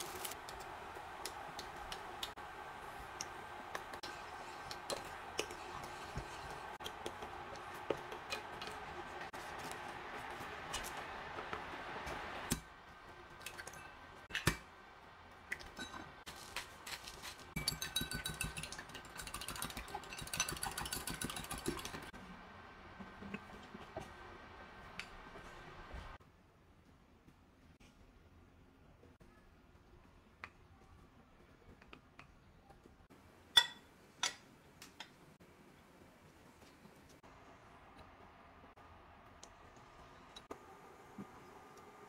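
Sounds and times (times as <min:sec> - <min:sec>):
eggs beaten in a glass cup: 0:17.6 - 0:22.1.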